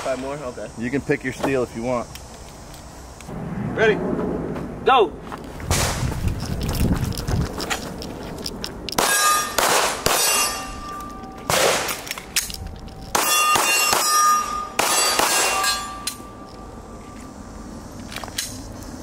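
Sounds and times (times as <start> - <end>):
steel target ringing: 9.0 - 12.0, 13.1 - 17.0
pistol shots: 9.0 - 12.2, 13.1 - 16.2.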